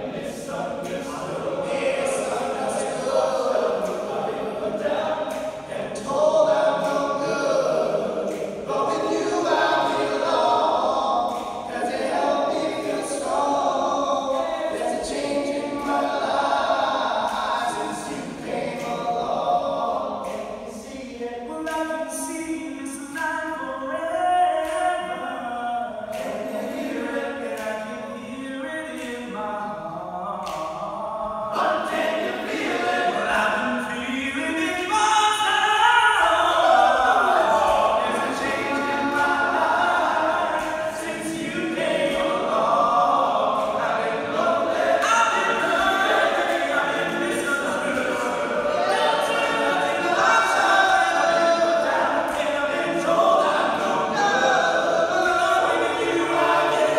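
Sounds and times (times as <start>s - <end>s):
male a cappella group singing: 0.0s - 56.9s.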